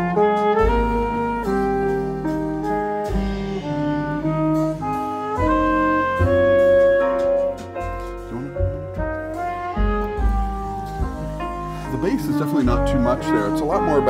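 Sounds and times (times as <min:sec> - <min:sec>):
instrumental music over loudspeakers: 0:00.0 - 0:14.0.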